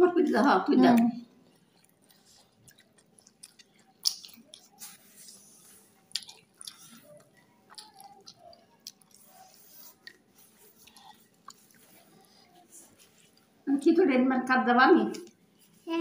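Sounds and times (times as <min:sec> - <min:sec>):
soft squishing of food: 0:00.2 - 0:13.7, 0:15.0 - 0:16.0
chewing: 0:01.2 - 0:13.6.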